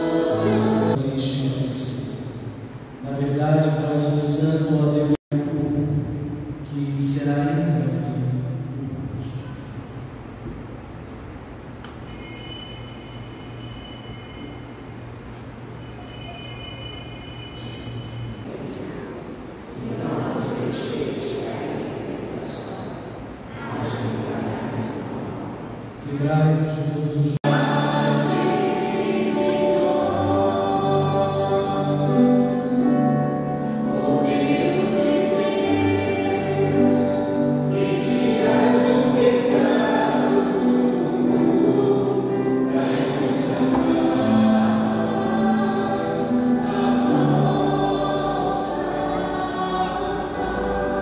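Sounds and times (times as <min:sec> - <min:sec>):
choir singing a hymn: 0:00.0 - 0:02.5, 0:19.6 - 0:26.3, 0:27.4 - 0:51.0.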